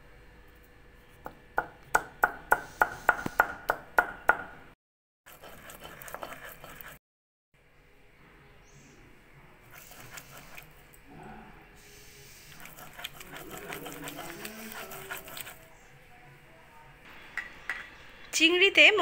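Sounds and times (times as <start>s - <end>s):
stone roller grinding paste: 5.3s - 7.0s, 9.7s - 10.8s, 12.4s - 15.8s.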